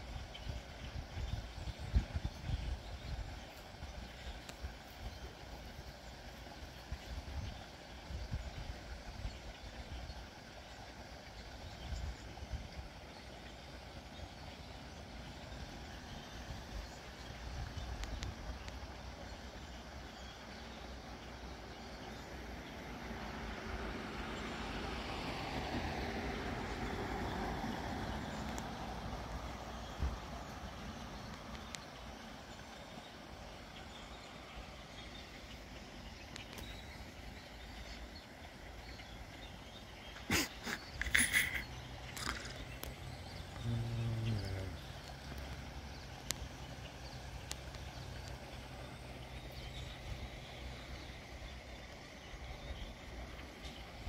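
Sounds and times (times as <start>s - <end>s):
vehicle passing on street: 22.4s - 31.3s.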